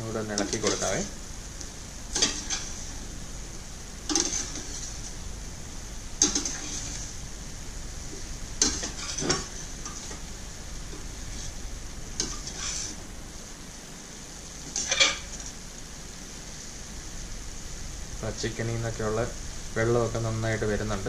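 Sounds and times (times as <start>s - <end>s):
food sizzling in a pan: 0.0s - 21.0s
metal spatula scraping pan: 2.1s - 2.9s, 4.1s - 5.1s, 6.2s - 7.1s, 8.6s - 10.2s, 12.2s - 13.0s.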